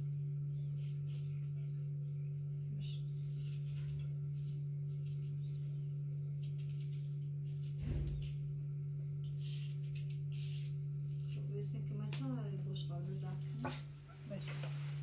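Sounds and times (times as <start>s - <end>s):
low steady hum: 0.0s - 15.0s
food being peeled: 0.7s - 1.4s, 3.2s - 11.5s.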